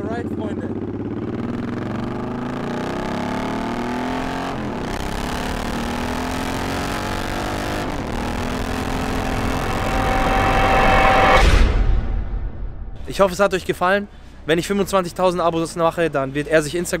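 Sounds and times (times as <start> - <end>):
motorcycle engine accelerating: 0.0 - 11.6.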